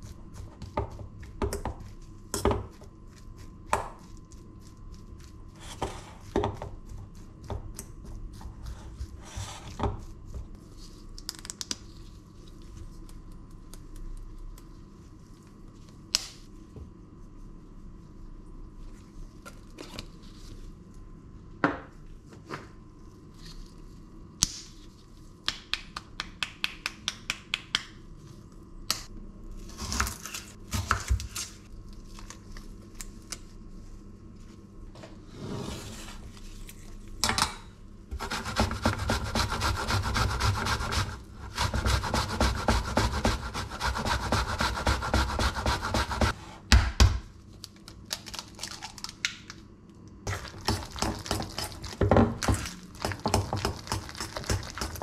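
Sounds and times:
knife chopping onion on board: 38.1s - 47.2s.

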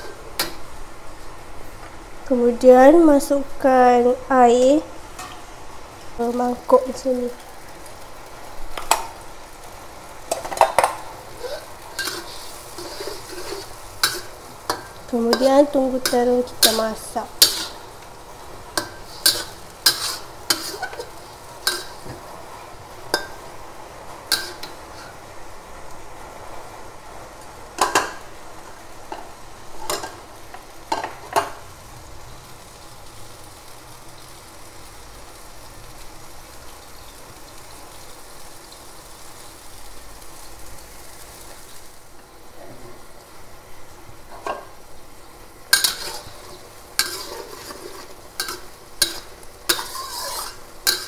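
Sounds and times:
soft sizzle of cooking: 0.0s - 51.0s
metal spatula scraping a wok: 10.3s - 18.0s, 18.7s - 22.2s, 24.3s - 25.2s, 45.7s - 51.0s
metal spatula clinking in wok: 48.4s - 51.0s.

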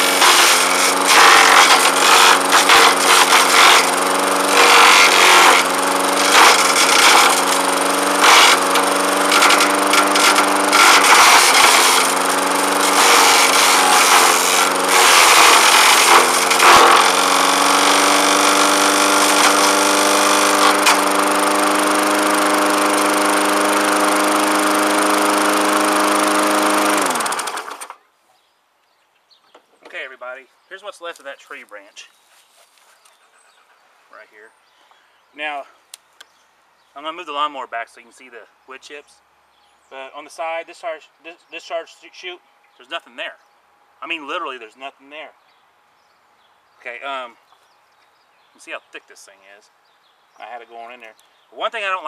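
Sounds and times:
lawnmower engine running: 0.0s - 28.0s
mower blade grinding branch: 0.0s - 28.0s.

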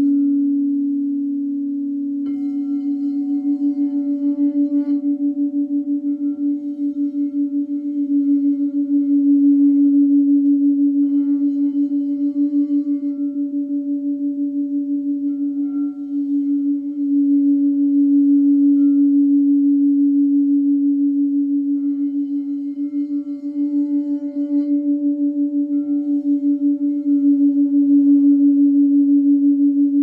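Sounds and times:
singing bowl pulsing tone: 0.0s - 30.0s.

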